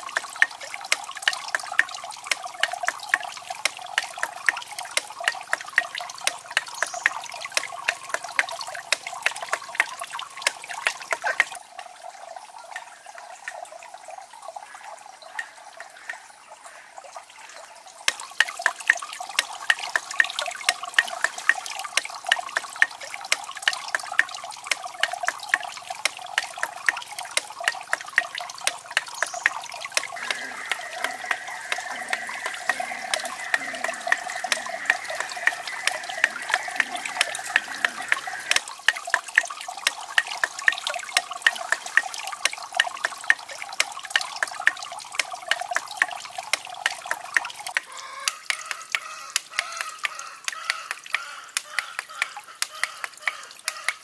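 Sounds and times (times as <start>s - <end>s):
sharp drip ticks: 0.0s - 54.0s
water trickling and splashing: 0.0s - 54.0s.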